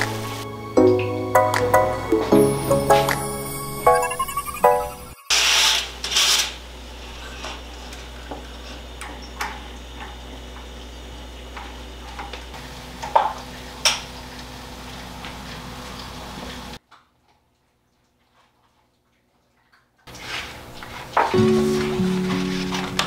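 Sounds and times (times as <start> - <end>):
soft music: 0.0 - 5.3, 21.4 - 23.0.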